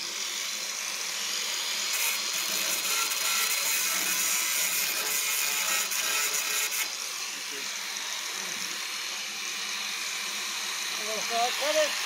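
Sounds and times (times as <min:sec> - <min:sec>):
power tool whirring on steel: 0:00.0 - 0:12.0.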